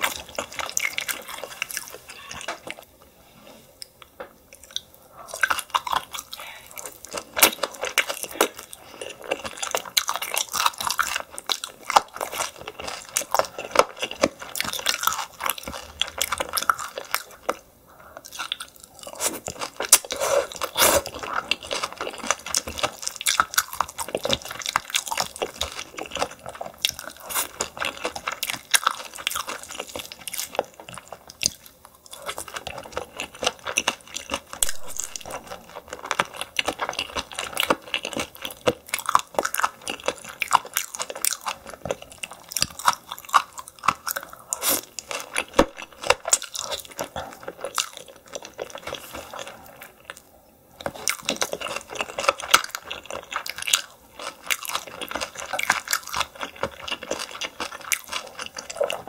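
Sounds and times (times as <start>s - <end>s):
chewing and crunching: 0.0s - 2.9s, 3.8s - 59.0s.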